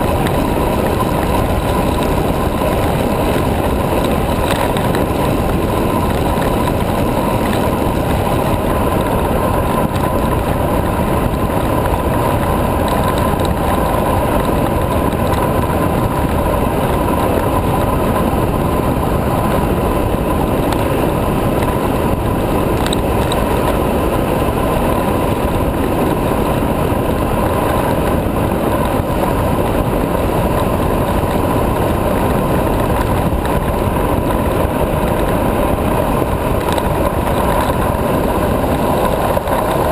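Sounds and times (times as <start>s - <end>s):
tyres rolling on asphalt: 0.0s - 39.9s
wind rushing over microphone: 0.0s - 39.9s.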